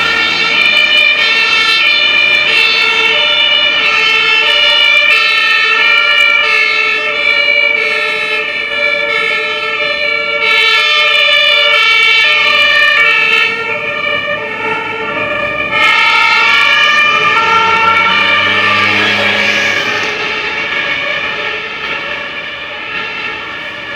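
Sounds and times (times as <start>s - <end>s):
vehicle engine rumble: 0.0s - 10.4s, 11.1s - 23.9s
two-tone fire engine sirens: 0.0s - 23.9s.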